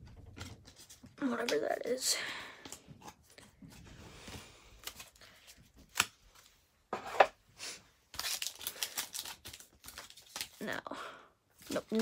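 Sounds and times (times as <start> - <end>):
wrapper snapping: 8.1 - 10.6
wrapper crinkling and tearing: 8.1 - 10.8, 11.6 - 12.0.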